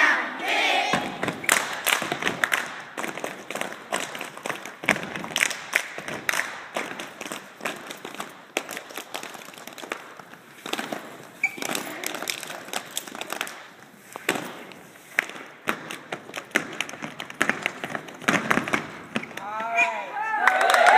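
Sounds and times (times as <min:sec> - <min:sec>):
hands clapping: 0:01.0 - 0:10.1, 0:20.4 - 0:20.9.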